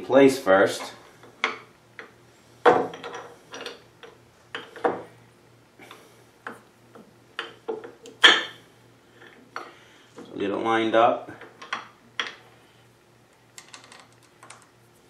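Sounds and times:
metal parts clinking and clunking: 0:02.7 - 0:04.9, 0:13.6 - 0:14.6.

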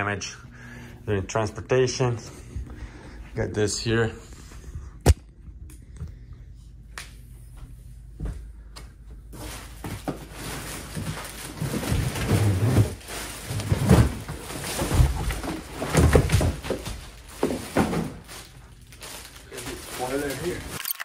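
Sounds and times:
cardboard packing crackling rustle: 0:09.4 - 0:20.8.

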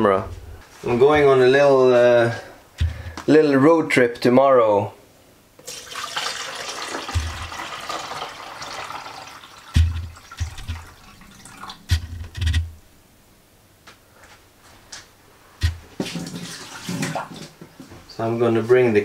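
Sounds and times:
water running from tap: 0:05.6 - 0:11.9, 0:16.0 - 0:17.6.

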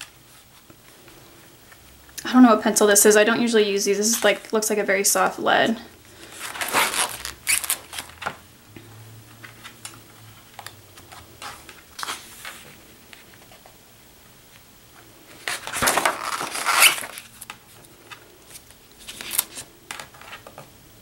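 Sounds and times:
paper pages rustling and flapping: 0:06.2 - 0:08.5, 0:09.2 - 0:13.8, 0:15.3 - 0:20.7.

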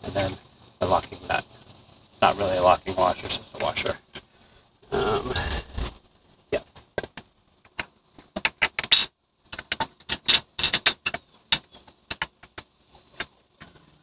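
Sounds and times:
metallic clicks and clinks: 0:03.2 - 0:03.7, 0:05.4 - 0:05.8.

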